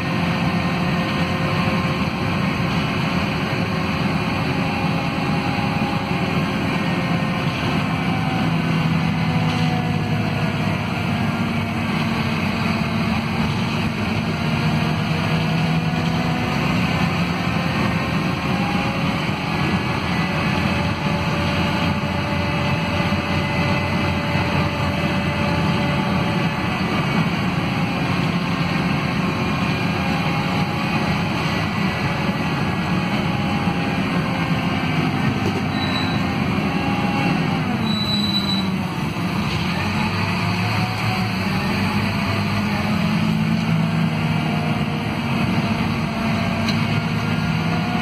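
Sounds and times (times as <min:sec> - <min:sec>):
bus drivetrain rumble: 0:00.0 - 0:48.0.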